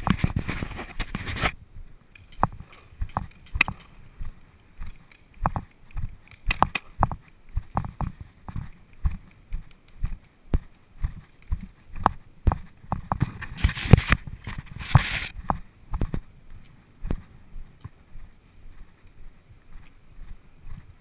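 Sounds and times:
footsteps: 0.0s - 21.0s
gear knocking and clicking: 2.2s - 3.9s, 4.8s - 14.7s.

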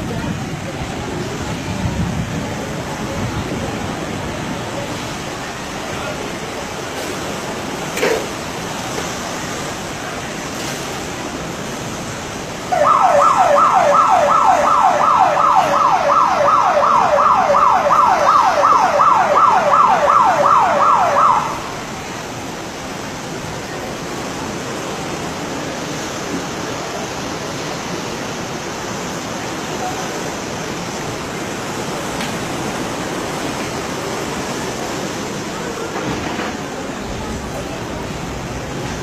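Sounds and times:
electronic alarm siren: 12.7s - 21.8s.

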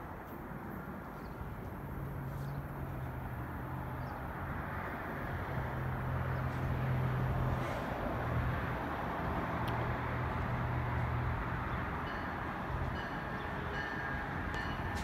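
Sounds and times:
train wheels rumbling on rail: 4.4s - 15.0s.

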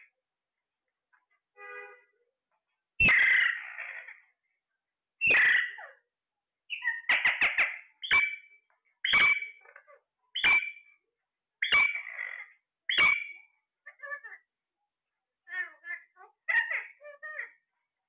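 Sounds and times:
parakeets squawking: 3.0s - 4.3s, 5.2s - 5.9s, 6.7s - 8.4s, 9.0s - 10.8s, 11.6s - 14.4s, 15.5s - 17.6s.

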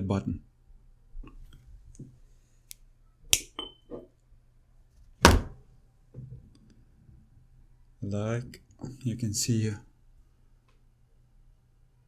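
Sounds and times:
loud thunk: 5.2s - 5.6s.

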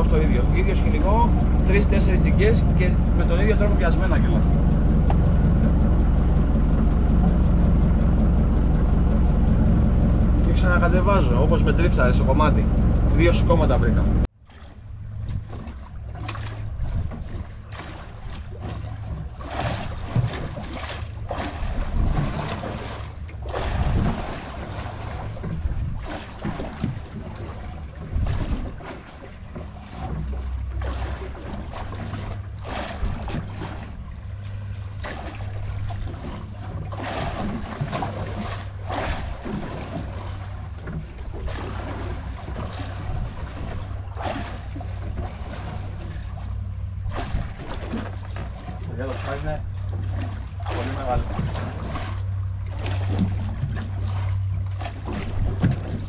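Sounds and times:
wind buffeting microphone: 0.0s - 14.3s, 14.9s - 20.8s, 21.6s - 30.4s
waves slapping boat hull: 0.0s - 56.0s.

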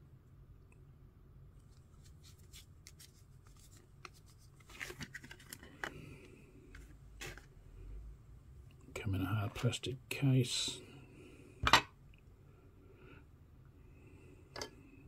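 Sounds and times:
plastic card case clicks and scrapes: 2.5s - 6.1s.

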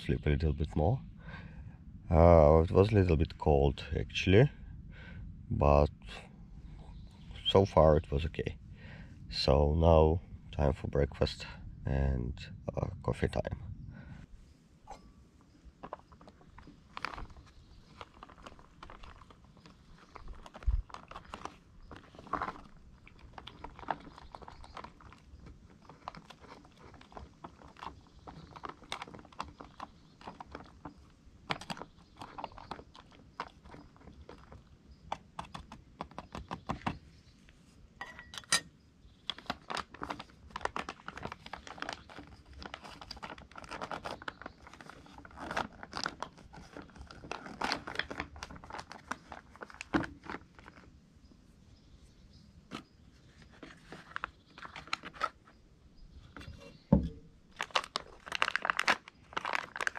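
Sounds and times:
camping pot and utensils clinking: 14.8s - 17.4s, 38.0s - 38.8s
paper and plastic pouches rustling: 15.8s - 34.8s, 39.2s - 51.0s, 52.7s - 55.5s, 56.1s - 59.9s.

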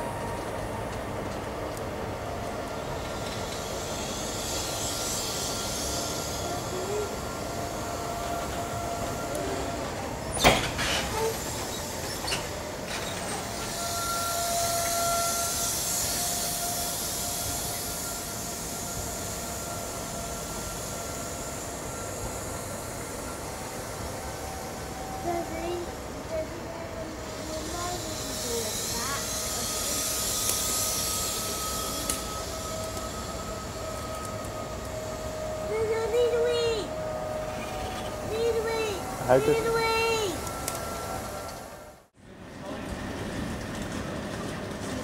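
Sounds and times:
train wheels rumbling on rail: 0.0s - 45.0s
thin steady whine: 15.3s - 42.1s.

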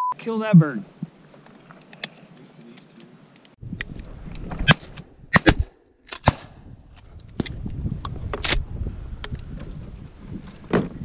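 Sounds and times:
wind rumbling on microphone: 3.6s - 5.7s, 6.3s - 11.0s
shotgun blasts: 4.7s - 6.6s.

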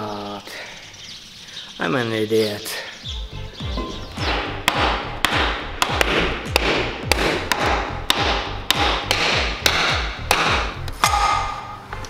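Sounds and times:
hammer striking steel: 3.8s - 11.8s.

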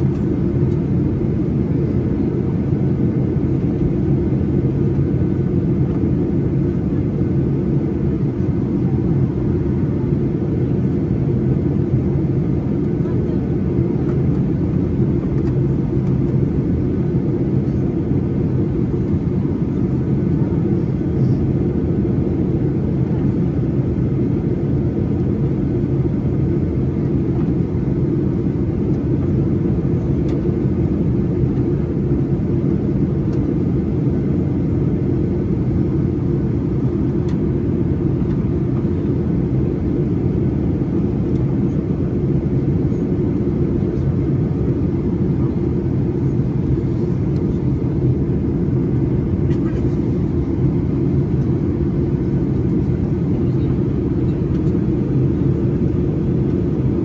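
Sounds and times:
airplane cabin engine rumble: 0.0s - 57.0s.

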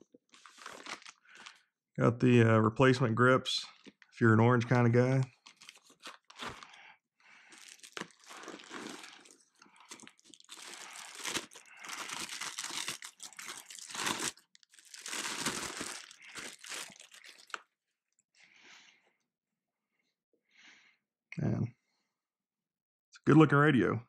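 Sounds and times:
plastic bag crinkling: 0.3s - 1.6s, 5.2s - 17.6s.

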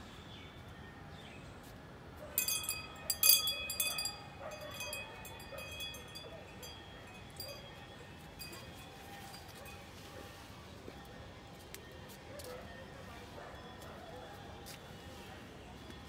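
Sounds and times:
metallic clinking with ringing: 2.4s - 9.8s.

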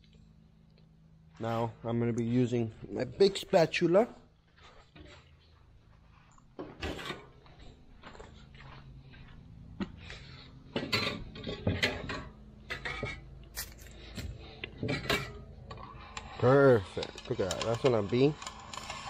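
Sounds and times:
plastic tools clinking and scraping: 10.7s - 19.0s.

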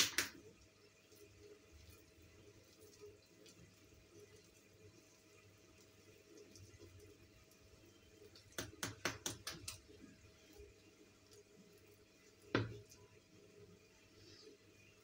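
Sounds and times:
kitchen clicks and taps: 8.4s - 9.8s.

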